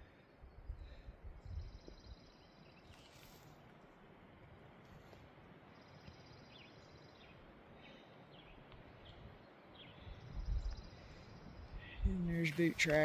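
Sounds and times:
faint bird chirps: 0.4 - 3.5, 5.7 - 12.3.

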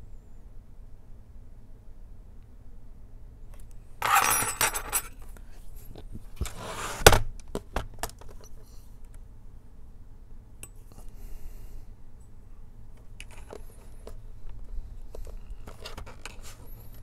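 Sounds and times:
rustling and scraping: 4.0 - 8.9, 13.0 - 17.0.

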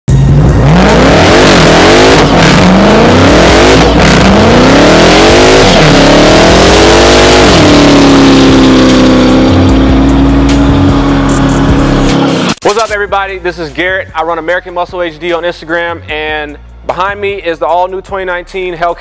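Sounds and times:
car engine revving: 0.1 - 12.6.

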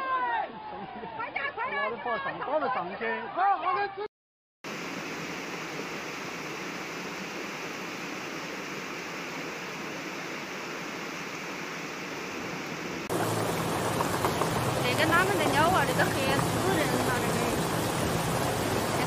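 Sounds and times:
flood water rushing with debris: 4.7 - 19.0
low hum: 13.1 - 19.0.

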